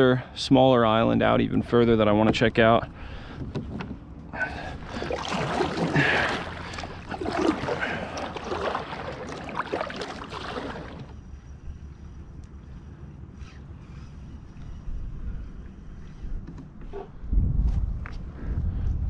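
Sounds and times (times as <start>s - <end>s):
paddle splashing in water: 4.5s - 11.2s
paddle knocking: 4.7s - 11.1s
water dripping: 4.8s - 11.1s.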